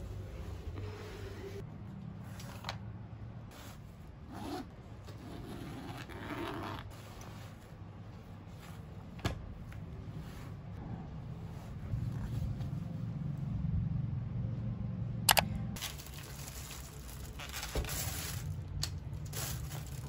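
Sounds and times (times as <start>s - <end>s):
low steady hum: 0.0s - 20.0s
zipper being drawn open: 4.3s - 7.3s.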